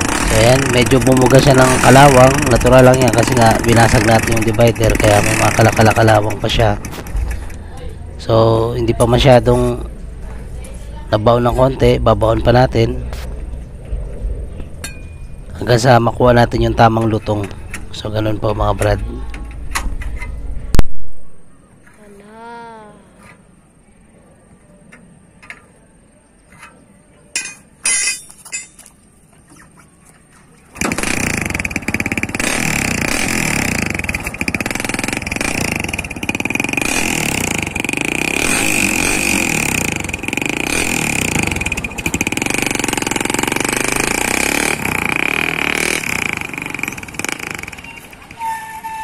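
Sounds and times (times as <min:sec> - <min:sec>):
motorcycle engine crackling exhaust: 0:00.0 - 0:09.3, 0:30.8 - 0:49.0.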